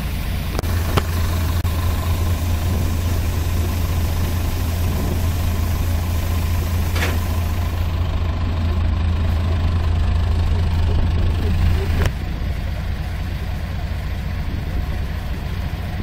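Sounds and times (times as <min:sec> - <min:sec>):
combine harvester engine hum: 0:00.0 - 0:16.0
grain pouring into truck: 0:00.7 - 0:08.1.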